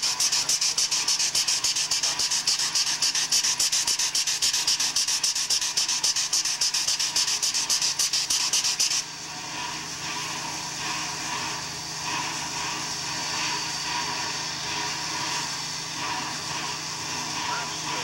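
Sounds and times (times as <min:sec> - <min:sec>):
steam locomotive hissing: 0:00.0 - 0:18.0.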